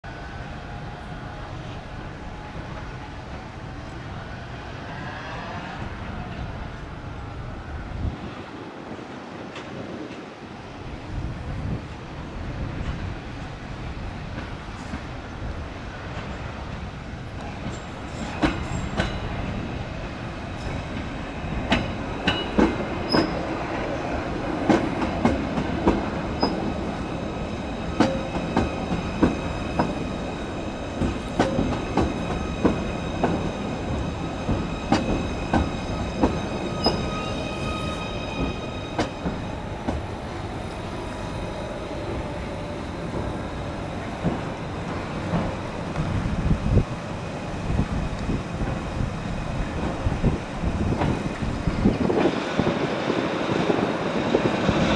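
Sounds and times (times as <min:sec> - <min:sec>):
train high whine: 0:00.0 - 0:54.9
train wheels clicking over rail joints: 0:16.1 - 0:19.6, 0:20.6 - 0:27.0, 0:27.7 - 0:37.2, 0:42.1 - 0:46.8, 0:47.7 - 0:52.7.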